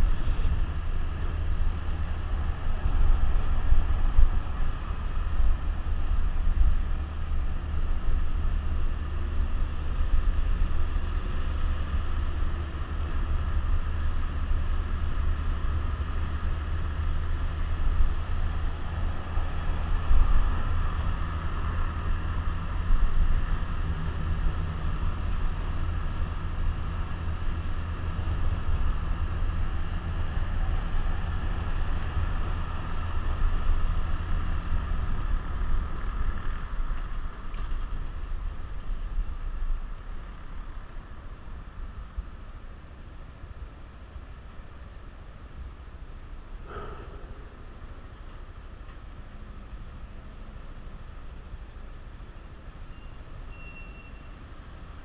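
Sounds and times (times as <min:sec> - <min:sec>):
wind rumbling on microphone: 0:00.0 - 0:42.4.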